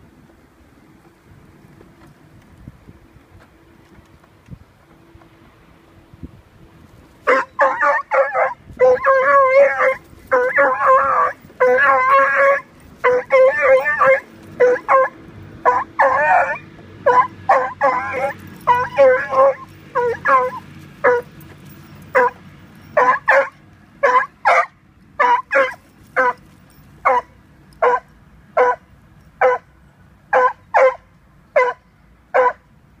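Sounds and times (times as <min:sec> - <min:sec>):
small dog barking: 0:07.3 - 0:21.3, 0:22.1 - 0:22.4, 0:23.0 - 0:26.4, 0:27.0 - 0:28.8, 0:29.4 - 0:29.7, 0:30.3 - 0:31.0, 0:31.6 - 0:31.8, 0:32.4 - 0:32.6.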